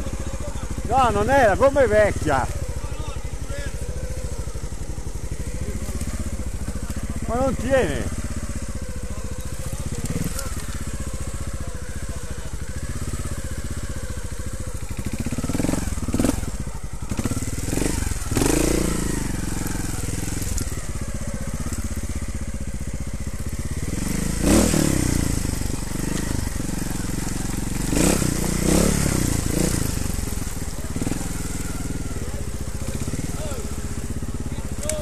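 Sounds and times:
motorcycle engine revving: 0.0s - 35.0s
tyres crunching over gravel: 0.0s - 35.0s.

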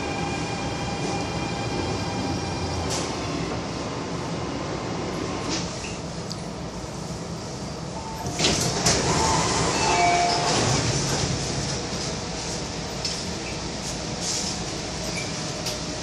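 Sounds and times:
train humming: 0.0s - 16.0s
train doors sliding open: 0.3s - 3.6s, 5.3s - 6.3s, 7.8s - 16.0s.

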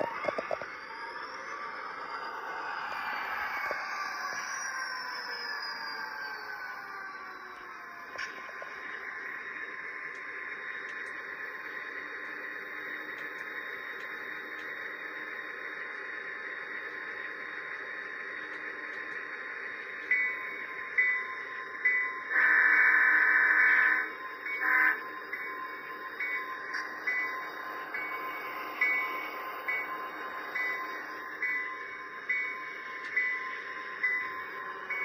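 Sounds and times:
model locomotive diesel engine sound: 0.0s - 35.0s
locomotive bell ringing: 20.0s - 35.0s
locomotive horn blasts: 22.3s - 23.9s, 24.6s - 25.0s.

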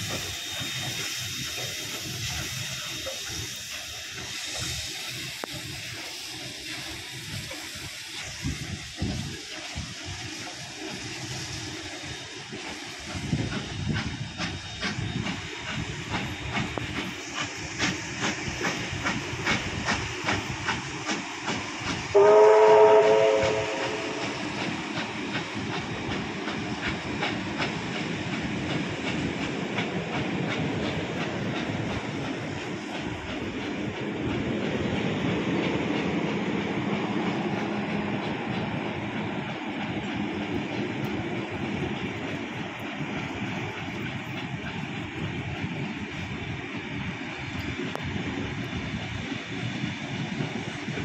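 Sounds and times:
steam locomotive exhaust beat: 0.0s - 51.0s
train wheels clacking over rails: 0.0s - 51.0s
steam whistle blast: 22.1s - 24.4s.

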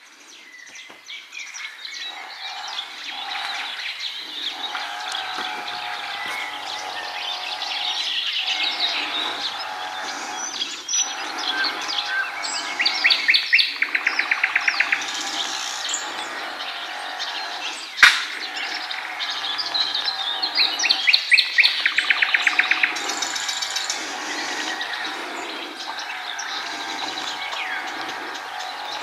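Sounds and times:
songbirds singing: 0.0s - 29.0s
rapid bird trill: 1.6s - 29.0s
sharp click: 18.0s - 18.3s.

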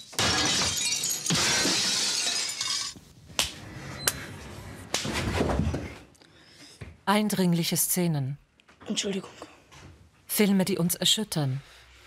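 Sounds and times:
glass shattering: 0.0s - 3.0s.

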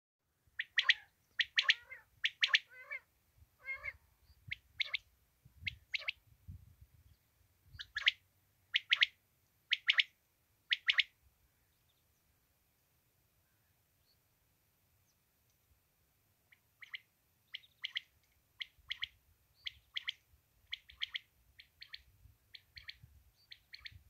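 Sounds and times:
quail calling: 0.6s - 5.0s, 5.7s - 6.2s, 7.8s - 10.1s, 10.7s - 11.1s, 17.6s - 22.0s.

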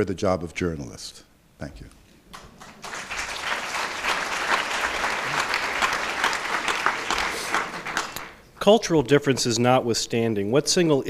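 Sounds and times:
audience applauding: 2.3s - 8.4s.

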